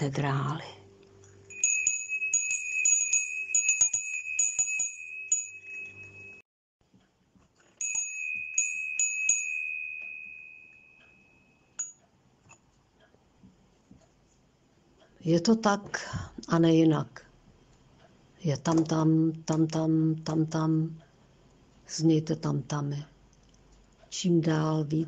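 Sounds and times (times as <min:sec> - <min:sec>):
wind bell ringing: 0:01.5 - 0:06.4, 0:07.8 - 0:12.0.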